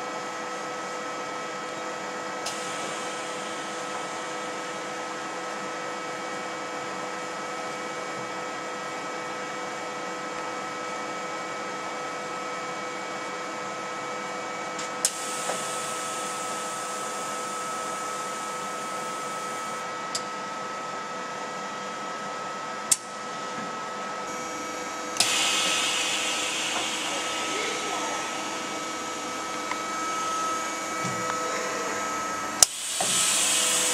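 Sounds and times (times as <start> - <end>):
lathe machine hum: 15.1 - 20.1, 24.2 - 33.9
loud hiss: 25.2 - 30.6, 32.6 - 33.9.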